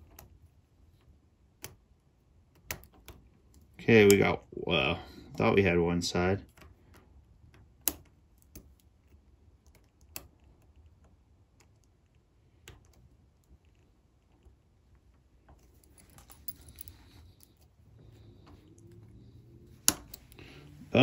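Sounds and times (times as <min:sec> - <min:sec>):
small metal clicks and scraping: 0:15.4 - 0:20.5.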